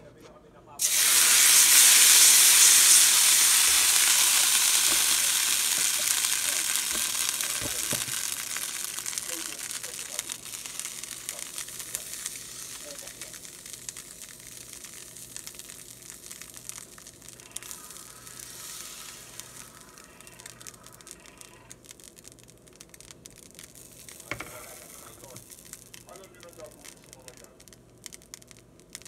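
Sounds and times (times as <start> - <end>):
fat sizzling in a frying pan: 0.8 - 29.0.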